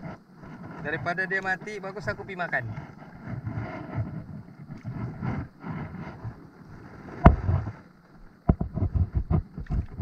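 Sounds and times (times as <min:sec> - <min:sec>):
dull thumps: 0:07.1 - 0:07.8.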